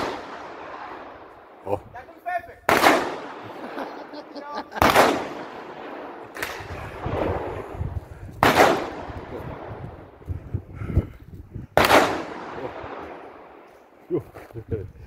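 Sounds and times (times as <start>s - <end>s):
gunshots with long echo: 0.0s - 1.7s, 2.6s - 10.4s, 11.7s - 14.0s.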